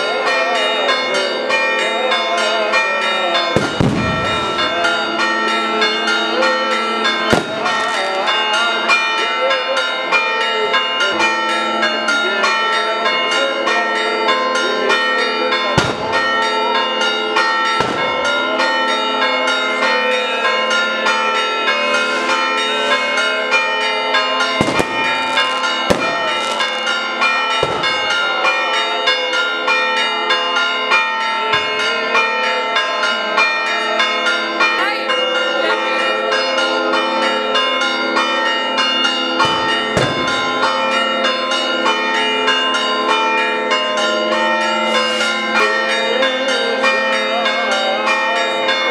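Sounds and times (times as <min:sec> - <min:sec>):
church bells pealing: 0:00.0 - 0:48.9
sharp bangs: 0:03.6 - 0:04.8, 0:07.3 - 0:08.0, 0:15.8 - 0:16.3, 0:17.8 - 0:18.4, 0:24.6 - 0:26.7, 0:27.5 - 0:28.2, 0:39.9 - 0:40.6.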